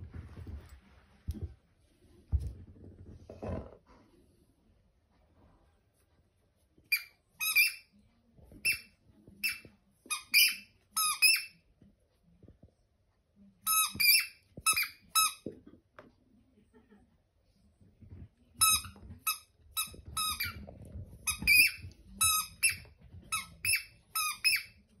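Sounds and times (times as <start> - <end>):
squeaky toy squeaking: 6.9 - 7.9, 8.6 - 11.6, 13.7 - 15.4, 18.6 - 20.6, 21.3 - 24.8
dog chewing toy: 18.6 - 24.7.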